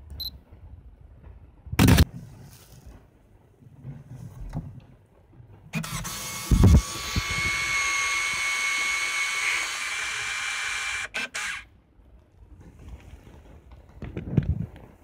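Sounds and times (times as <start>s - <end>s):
camera motor drive whining: 5.8s - 11.7s.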